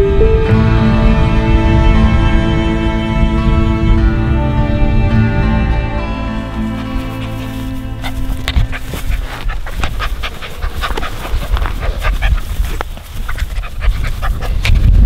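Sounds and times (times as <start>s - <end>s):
camera jostling rumble and rustle: 6.5s - 15.0s
puppy panting: 6.6s - 15.0s.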